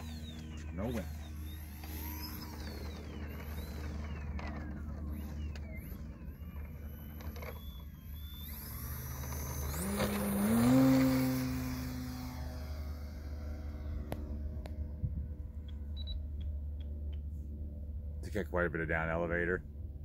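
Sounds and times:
electric model plane motor whining: 0.0 - 18.1.

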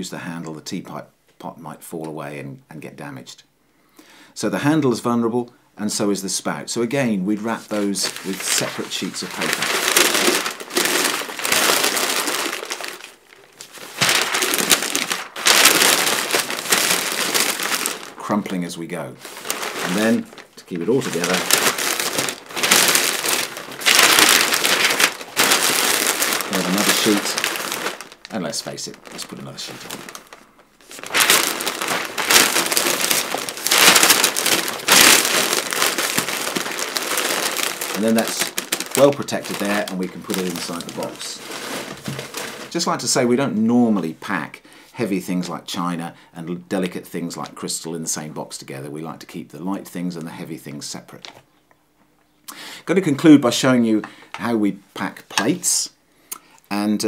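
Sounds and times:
paper crinkling and rustling: 7.3 - 44.0.

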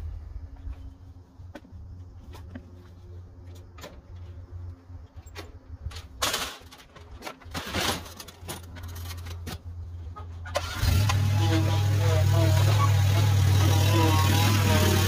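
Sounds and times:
engine running loud: 10.6 - 15.0
small engine running: 10.6 - 15.0.

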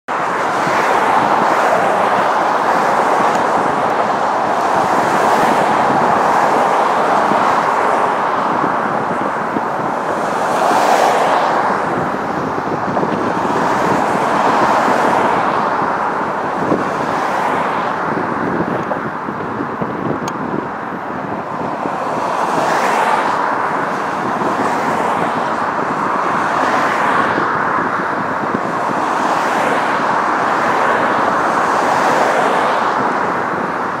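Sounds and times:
cars passing close by: 0.0 - 34.0.

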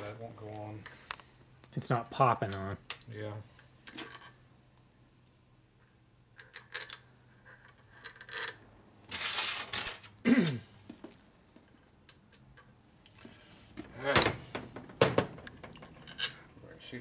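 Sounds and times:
scraping and rustling handling noise: 7.5 - 11.9
metal bolts clicking and clinking: 15.0 - 16.4.

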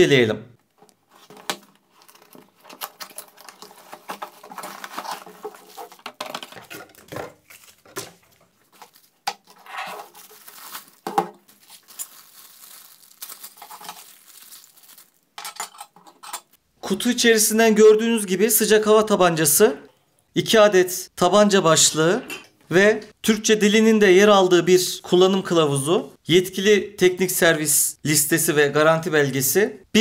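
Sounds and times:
cardboard and plastic rustling: 0.6 - 15.4
plastic bag crinkling: 0.8 - 15.9.

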